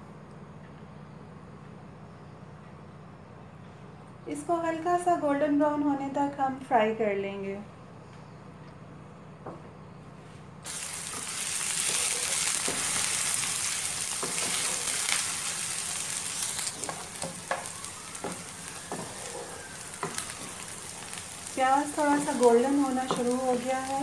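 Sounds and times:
onion sizzling in frying pan: 10.6 - 24.0.

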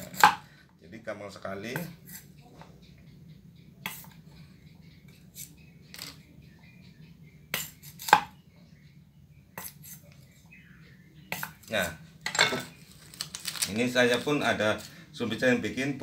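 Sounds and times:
machete splitting bamboo: 0.0 - 0.4.

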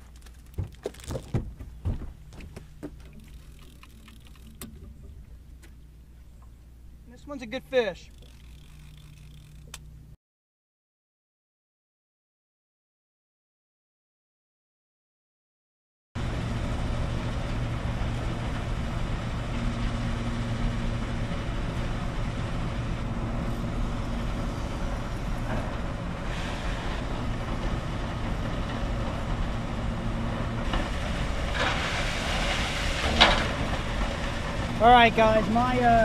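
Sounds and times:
heavy machinery engine drone: 0.0 - 10.2, 16.2 - 36.0.

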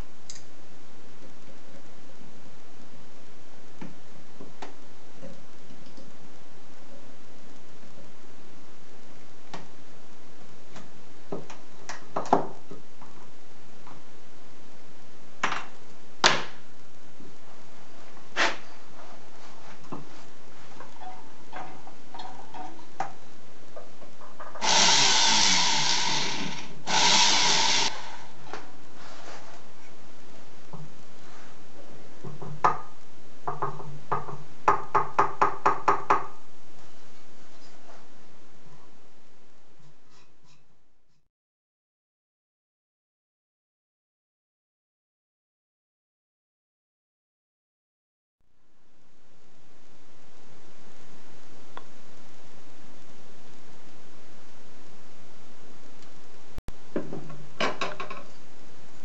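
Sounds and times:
steady hiss: 24.6 - 31.8.

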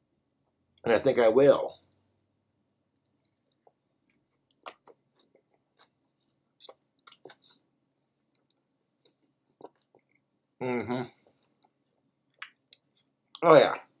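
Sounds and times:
chewing with wet mouth clicks: 3.0 - 7.6, 8.3 - 10.3, 11.5 - 13.6.

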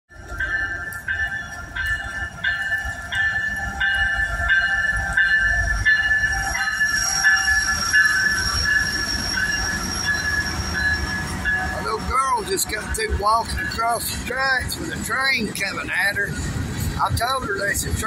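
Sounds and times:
freight train rumble: 0.1 - 18.0
ringing tone: 0.4 - 13.8
high steady squeal: 4.9 - 13.0.

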